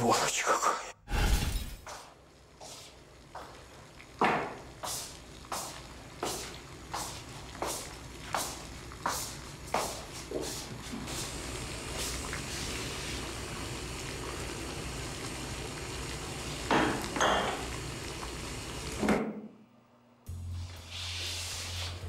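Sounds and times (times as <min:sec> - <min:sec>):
water running from tap into bathtub: 0:02.5 - 0:19.1.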